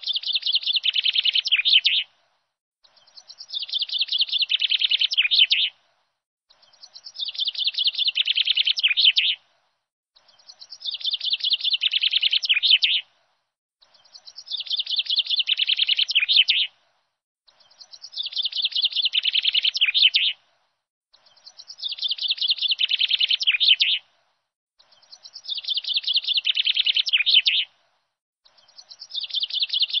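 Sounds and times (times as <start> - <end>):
bird chirping trill: 2.9 - 5.7, 10.2 - 13.0, 13.9 - 16.7, 17.5 - 20.4, 21.1 - 24.0, 24.8 - 27.7, 28.4 - 30.0.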